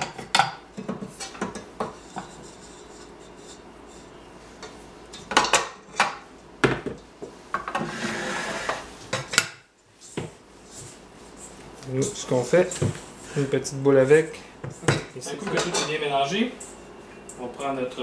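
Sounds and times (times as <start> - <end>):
metal rubbing: 7.8 - 8.9.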